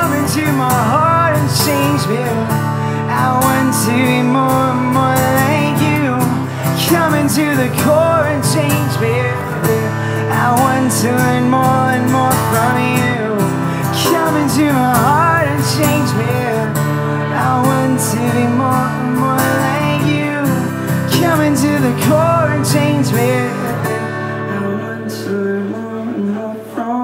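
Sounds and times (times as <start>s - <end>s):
acoustic guitar strumming: 0.0s - 27.0s
man singing: 0.0s - 27.0s.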